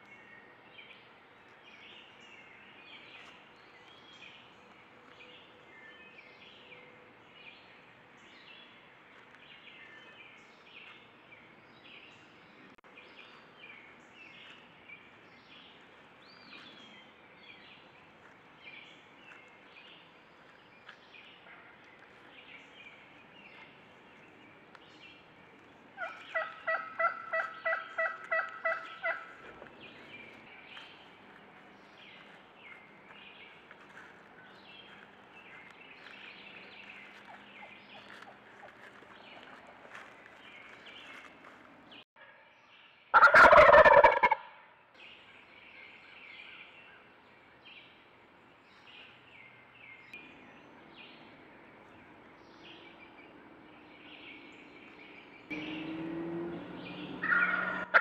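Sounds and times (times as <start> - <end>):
turkeys calling: 25.6 - 31.4, 36.9 - 41.2, 43.1 - 44.6, 56.9 - 58.0
turkey gobble: 26.0 - 29.4, 43.1 - 44.6, 57.2 - 58.0.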